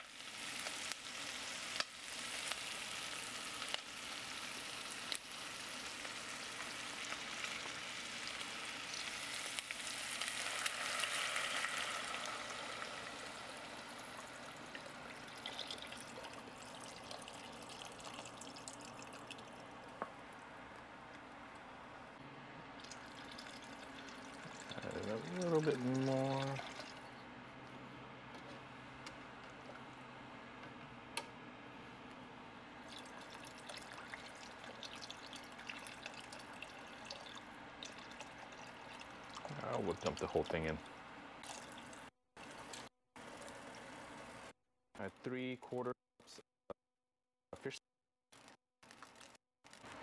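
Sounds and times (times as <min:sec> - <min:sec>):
meat sizzling in hot oil: 0:00.0 - 0:18.3
liquid pouring: 0:08.8 - 0:20.0, 0:22.8 - 0:27.1, 0:32.8 - 0:44.0.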